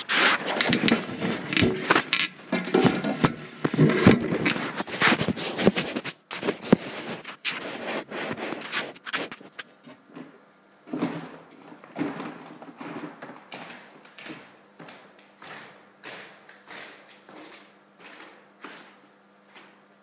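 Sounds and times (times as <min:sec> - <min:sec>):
paper rustling and scraping: 0:00.0 - 0:09.8.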